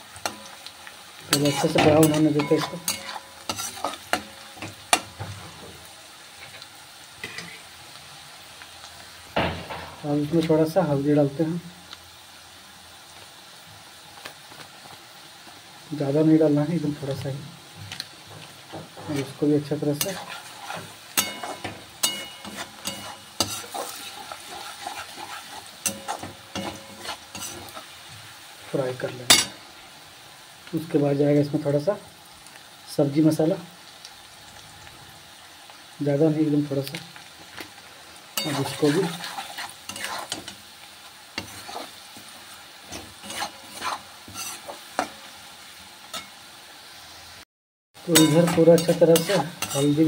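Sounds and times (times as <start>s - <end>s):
spatula scraping wok: 0.0s - 7.8s, 17.0s - 29.6s, 37.6s - 46.4s, 48.0s - 50.0s
mushrooms sizzling in oil: 0.0s - 50.0s
spatula clinking on pan: 1.3s - 5.1s, 20.0s - 24.0s, 25.9s - 27.6s, 38.4s - 38.9s, 48.2s - 50.0s.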